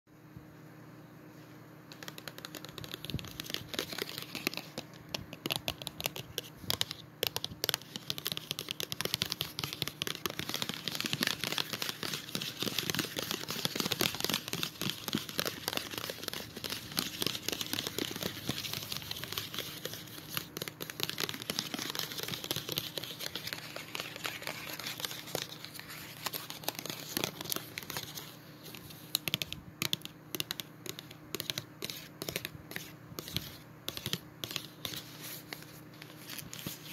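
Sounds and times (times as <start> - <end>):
gum packaging crinkling: 1.9 - 28.3.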